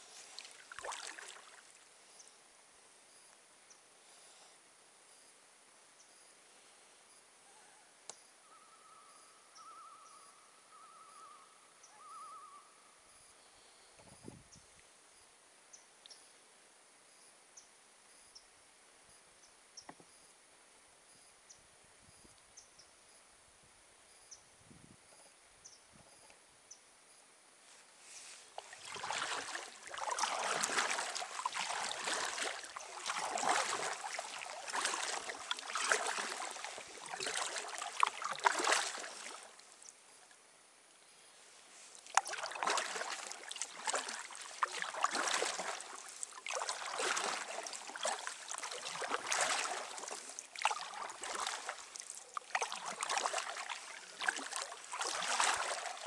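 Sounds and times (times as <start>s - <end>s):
paddle strokes splashing water: 0.0s - 1.8s, 28.2s - 39.9s, 41.9s - 56.0s.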